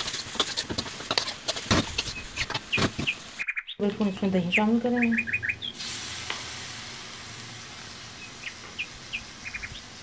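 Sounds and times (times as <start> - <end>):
yogurt sizzling in hot pan: 0.0 - 3.4, 5.7 - 10.0.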